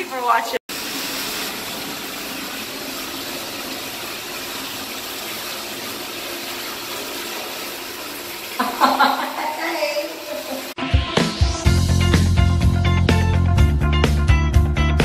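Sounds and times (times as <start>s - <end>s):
water pouring into bathtub: 0.0s - 10.8s.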